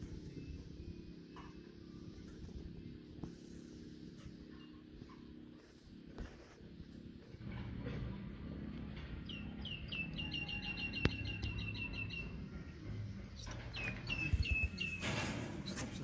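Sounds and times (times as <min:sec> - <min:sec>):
small bird chirping: 0:09.2 - 0:12.4, 0:13.3 - 0:15.0.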